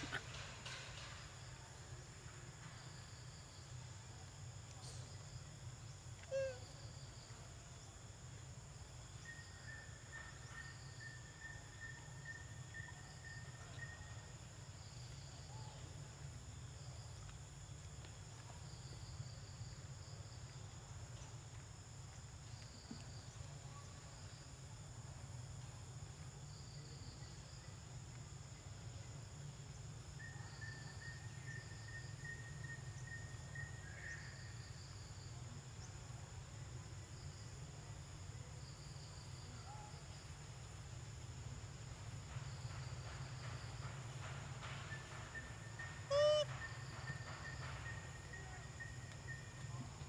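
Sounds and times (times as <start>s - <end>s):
insect drone: 0.0s - 50.0s
thin steady whistle: 44.9s - 49.6s.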